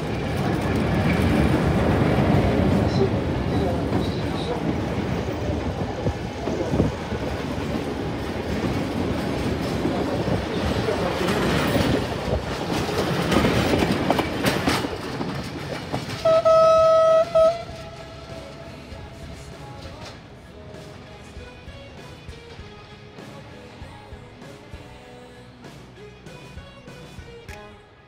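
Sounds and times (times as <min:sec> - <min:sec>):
train wheels rumbling on rails: 0:00.0 - 0:24.9
train horn blast: 0:16.2 - 0:18.9.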